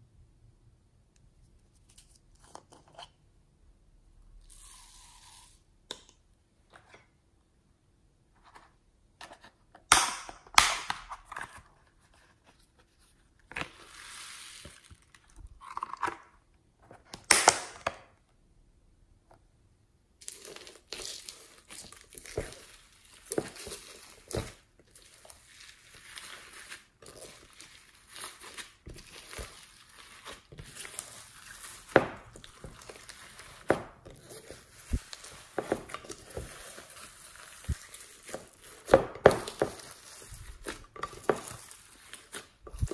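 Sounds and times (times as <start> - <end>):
slime squishing: 20.2 - 42.9.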